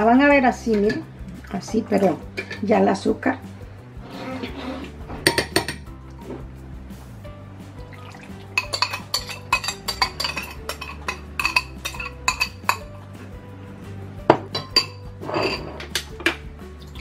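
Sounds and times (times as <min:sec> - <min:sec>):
background music: 0:00.0 - 0:17.0
metal spoon clinking on ceramic mug: 0:08.6 - 0:12.9, 0:14.5 - 0:15.6.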